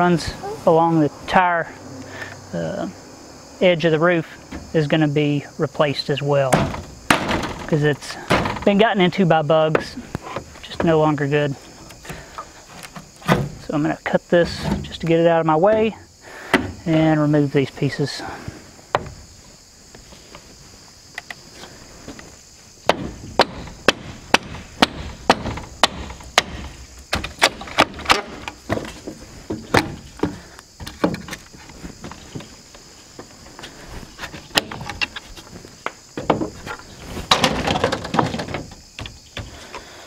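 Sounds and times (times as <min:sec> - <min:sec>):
wood knocking and cracking: 0:06.5 - 0:08.9, 0:09.6 - 0:11.2, 0:11.8 - 0:13.7, 0:18.9 - 0:19.3, 0:22.1 - 0:33.4, 0:34.2 - 0:39.9.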